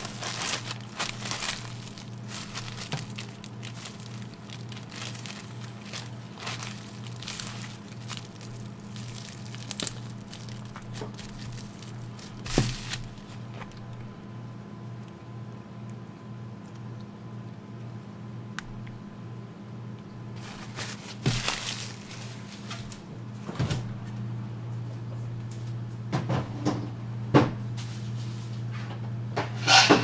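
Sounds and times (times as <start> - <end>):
food wrapping crinkling: 0.0 - 14.2, 20.4 - 23.0
low steady hum: 0.0 - 30.0.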